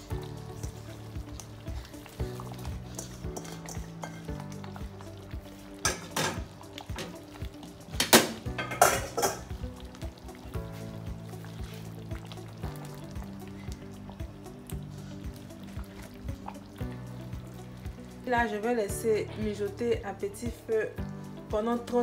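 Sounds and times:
soft background music: 0.0s - 22.0s
metal utensils clanking on pot: 2.4s - 4.8s, 5.8s - 7.2s, 8.0s - 9.6s.

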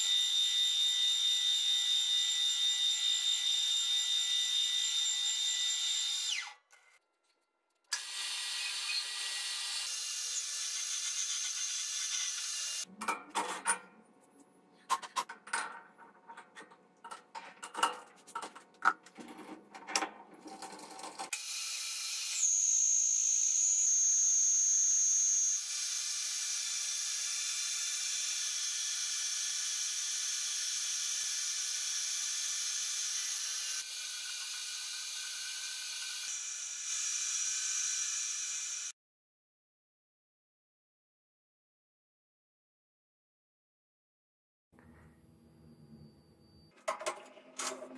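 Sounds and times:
metal clicks and knocks: 14.9s - 21.3s.

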